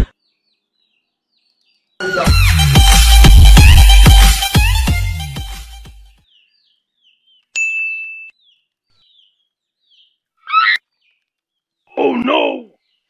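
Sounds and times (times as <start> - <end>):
background music: 2.0 - 6.2
chick peeping: 8.3 - 12.0.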